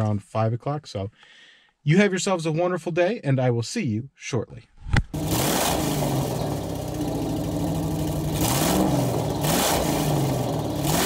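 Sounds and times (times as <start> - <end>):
engine revving: 5.1 - 11.0
car engine idling: 5.2 - 11.0.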